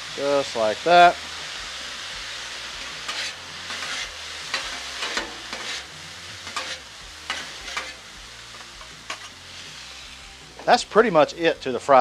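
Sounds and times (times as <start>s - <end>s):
rice sizzling on a griddle: 0.0s - 12.0s
metal spatulas scraping and clacking: 2.9s - 8.0s, 8.8s - 9.4s.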